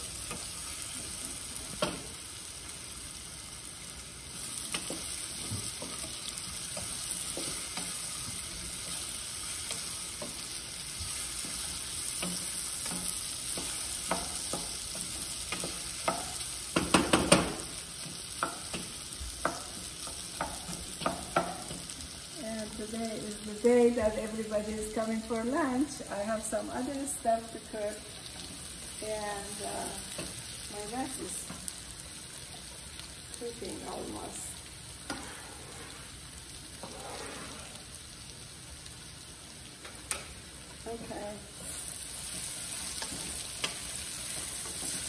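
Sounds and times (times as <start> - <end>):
beans sizzling in oil: 0.0 - 45.0
wooden spoon knocking pan: 15.5 - 17.6.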